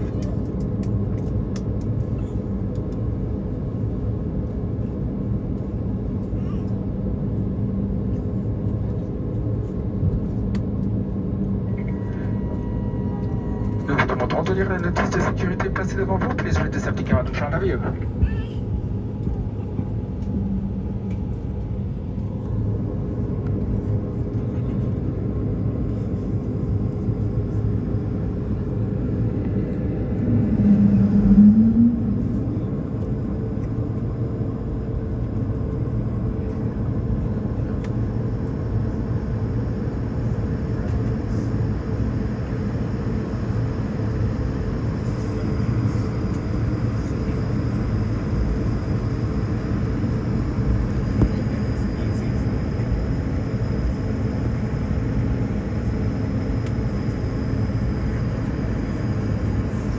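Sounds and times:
jet engine rumble in cabin: 0.0s - 59.9s
low wavering tone: 11.6s - 13.7s, 30.0s - 33.4s.

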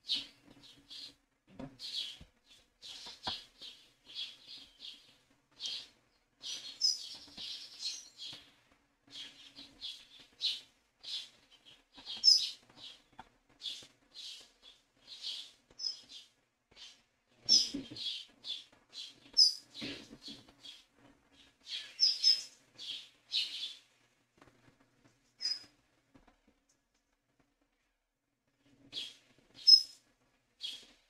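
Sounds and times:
birds chirping: 9.2s - 13.0s, 17.5s - 20.0s.

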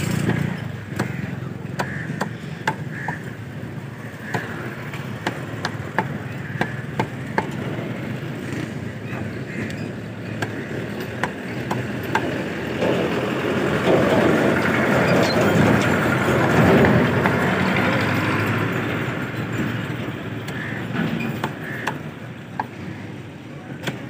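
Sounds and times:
cleaver chopping on wooden block: 0.2s - 3.3s.

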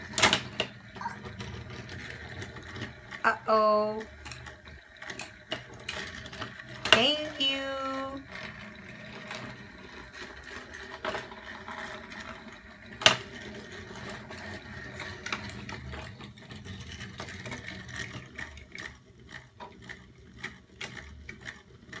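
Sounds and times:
wooden toys clicking on table: 0.0s - 3.2s.

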